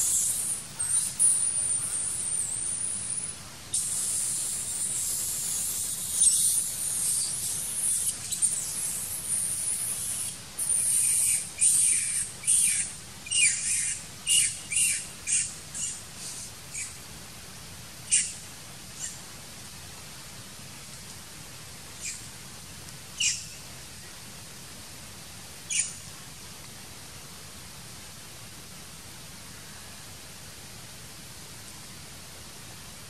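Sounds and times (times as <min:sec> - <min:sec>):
insects droning and pulsing: 0:00.0 - 0:17.0.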